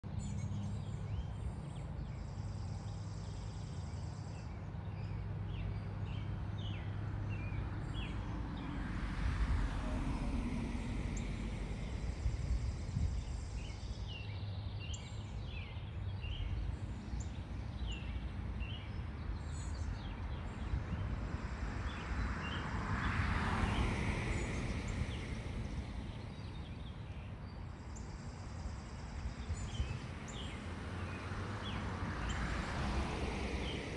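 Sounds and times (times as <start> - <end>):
broad rushing noise: 8.4 - 13.9, 21.3 - 26.9, 29.6 - 33.9
low rumble: 8.4 - 13.9
small birds chirping: 10.7 - 33.9.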